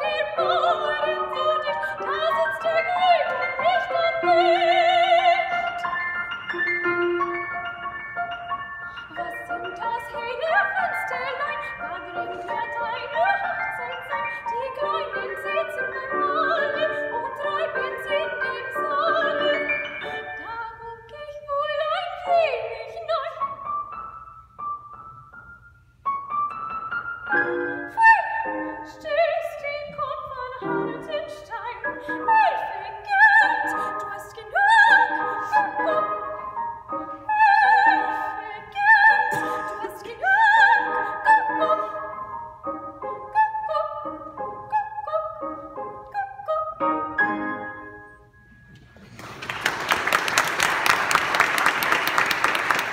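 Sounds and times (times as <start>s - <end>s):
woman singing classical song: 0.0s - 8.1s, 8.9s - 23.7s, 27.3s - 48.2s
piano accompaniment: 0.0s - 52.9s.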